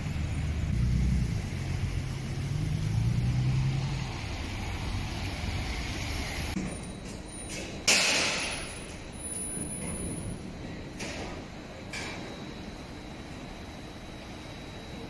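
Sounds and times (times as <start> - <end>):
car engine droning: 0.0 - 7.2
tyres on wet road: 0.0 - 7.3
traffic noise: 0.0 - 15.0.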